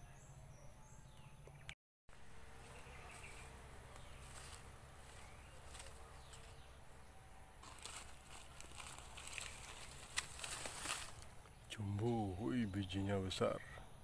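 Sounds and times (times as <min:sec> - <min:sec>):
leaves rustling: 0:02.1 - 0:12.2
insects buzzing and chirping: 0:02.1 - 0:14.0.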